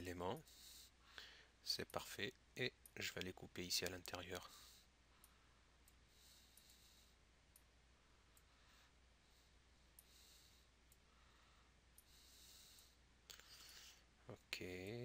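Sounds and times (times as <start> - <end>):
faint room hiss: 0.0 - 15.0
computer mouse clicks: 5.8 - 6.9.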